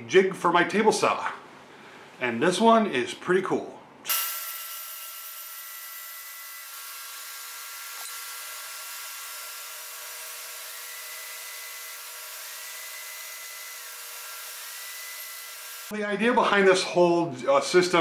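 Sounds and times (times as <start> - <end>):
table saw cutting wood: 4.1 - 15.9.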